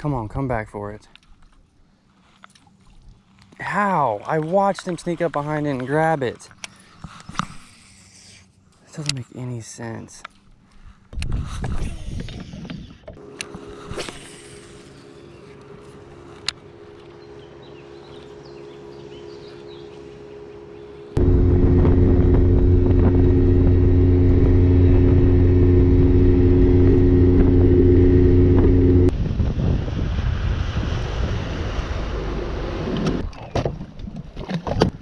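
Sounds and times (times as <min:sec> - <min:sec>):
faint motor hum: 0:13.2 - 0:29.1
outboard motor running loud: 0:13.2 - 0:29.1
wind and water rushing: 0:21.2 - 0:35.0.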